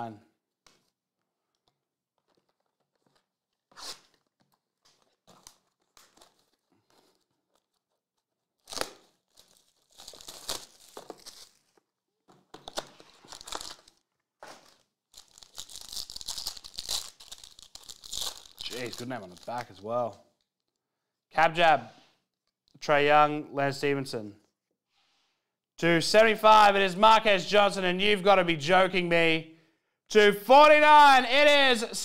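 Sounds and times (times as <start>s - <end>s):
cards being handled: 1.6s - 20.8s
foil wrapper tearing and crinkling: 2.3s - 11.9s, 12.6s - 19.8s.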